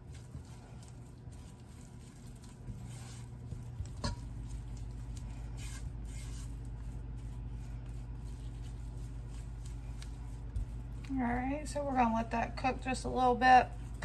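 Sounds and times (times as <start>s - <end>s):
spatula scraping a pot: 0.0s - 11.8s.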